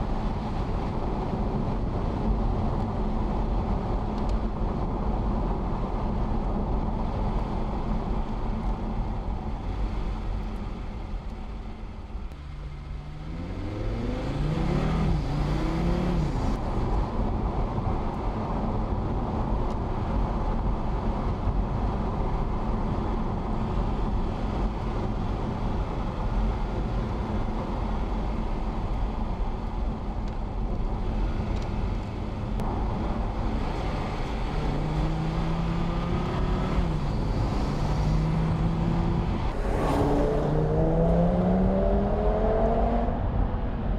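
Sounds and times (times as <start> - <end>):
tyre and road noise: 0.0 - 43.9
car engine accelerating hard: 12.3 - 16.8, 32.6 - 43.7.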